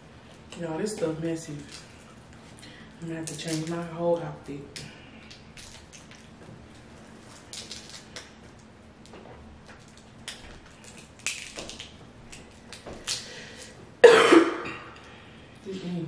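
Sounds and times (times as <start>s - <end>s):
crab shells cracking: 3.2s - 3.8s, 4.7s - 6.4s, 7.3s - 13.8s.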